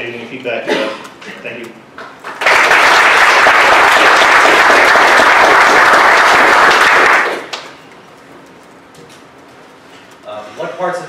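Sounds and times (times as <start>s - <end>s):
audience applauding: 2.2s - 7.8s.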